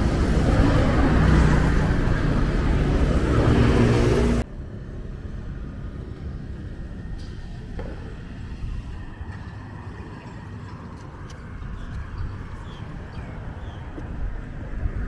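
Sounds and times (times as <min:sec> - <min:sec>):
passing vehicles rumble: 0:00.0 - 0:15.0.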